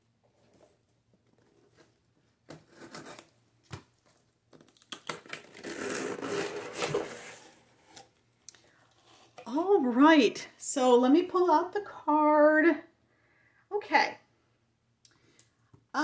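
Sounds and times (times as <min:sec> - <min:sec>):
cardboard scraping and tearing: 0:05.4 - 0:08.0.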